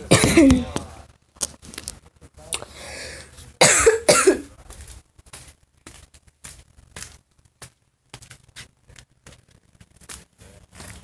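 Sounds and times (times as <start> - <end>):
person coughing: 0.1 - 0.6, 3.6 - 4.5
soft footsteps and scuffs: 4.5 - 11.0.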